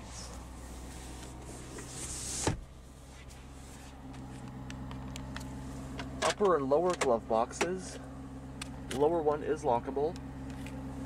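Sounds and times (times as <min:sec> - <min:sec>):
truck engine idling: 0:00.0 - 0:11.0
brushing rustle: 0:00.1 - 0:04.4.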